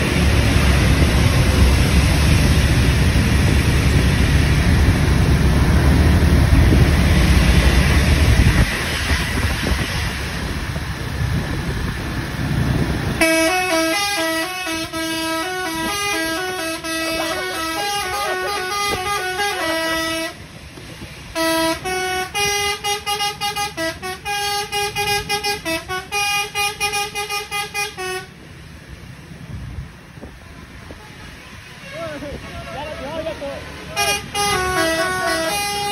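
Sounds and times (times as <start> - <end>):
bus rumble: 0.0 - 35.9
wind: 0.0 - 35.9
multi-tone bus horn melody: 13.1 - 20.5, 21.3 - 28.5, 30.3 - 35.9.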